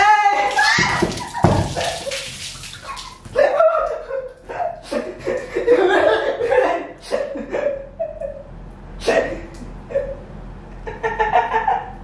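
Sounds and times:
woman laughing: 0:03.3 - 0:08.4.

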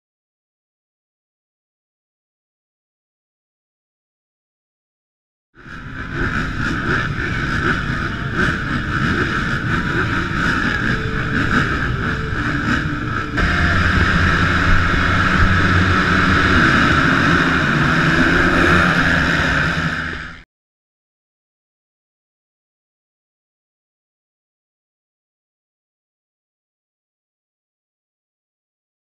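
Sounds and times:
motocross bikes revving: 0:05.6 - 0:20.4.

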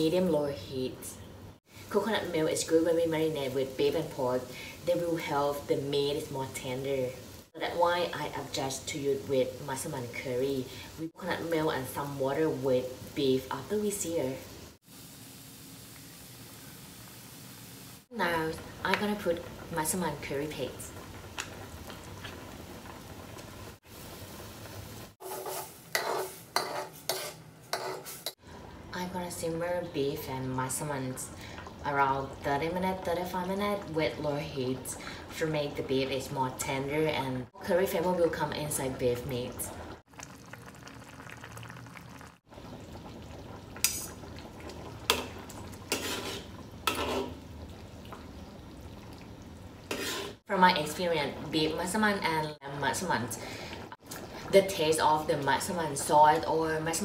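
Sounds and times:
liquid simmering with hiss: 0:00.3 - 0:26.5, 0:28.0 - 0:57.0
metal ladle scraping wok: 0:25.2 - 0:28.4, 0:45.1 - 0:47.4, 0:49.9 - 0:50.4.

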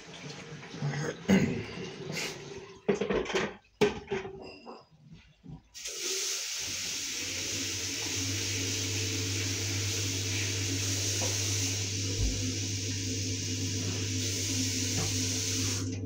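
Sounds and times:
tap water running into bin: 0:00.0 - 0:03.6, 0:05.7 - 0:16.0
low hum: 0:09.6 - 0:15.9.

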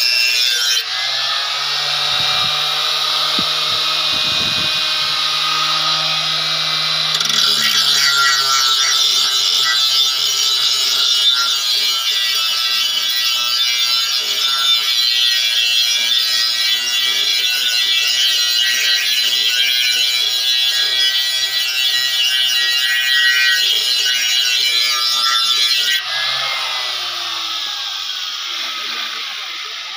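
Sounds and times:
grinding wheel on steel blade: 0:00.0 - 0:29.9
electric motor whine: 0:00.8 - 0:10.7, 0:25.8 - 0:29.9.

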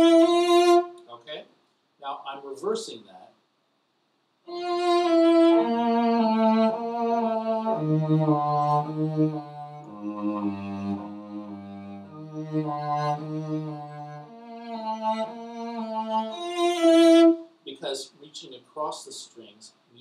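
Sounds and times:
cello bowed notes: 0:00.0 - 0:01.2, 0:04.5 - 0:17.4.

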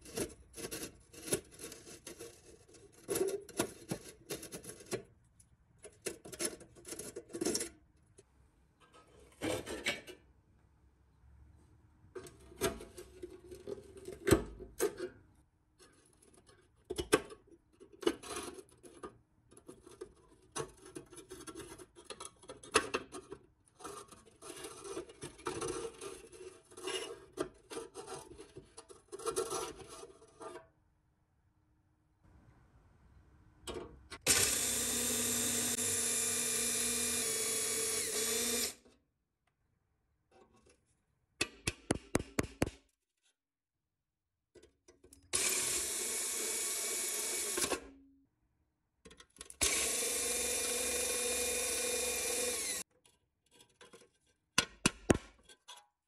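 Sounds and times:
power tool running: 0:34.2 - 0:38.8, 0:49.6 - 0:52.8.

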